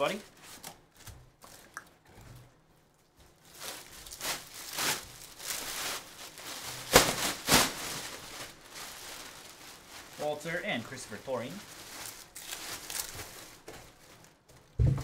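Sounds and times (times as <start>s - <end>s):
card pack crinkling: 3.4s - 14.3s.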